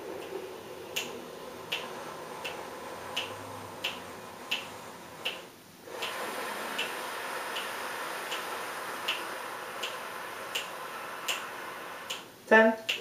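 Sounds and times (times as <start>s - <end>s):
metronome clicking: 3.2s - 5.4s
inhale through cupped hand: 5.9s - 12.2s
steady exhale: 5.9s - 12.2s.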